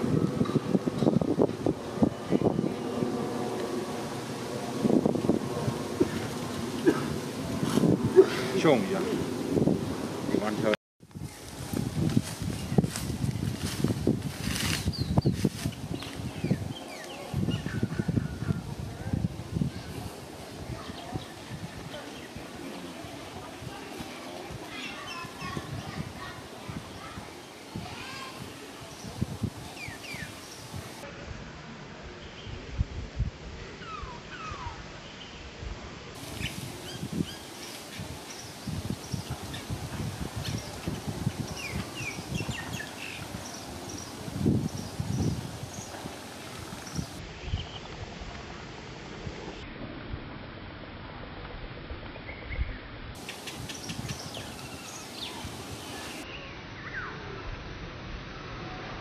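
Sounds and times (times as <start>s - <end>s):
steady outdoor hiss: 0.0s - 59.0s
high chirping calls: 40.4s - 46.0s, 53.2s - 57.2s.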